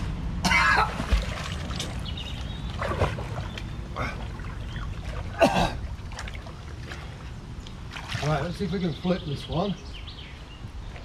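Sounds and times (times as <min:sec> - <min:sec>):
steady low rumble: 0:00.0 - 0:07.9
water splashing and sloshing: 0:00.0 - 0:09.2.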